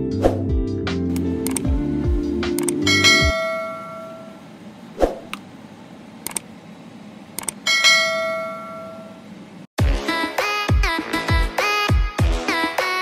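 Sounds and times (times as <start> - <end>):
background music: 0.0 - 3.4
mouse clicks: 1.1 - 1.7
bell-like notification ding: 2.9 - 4.4.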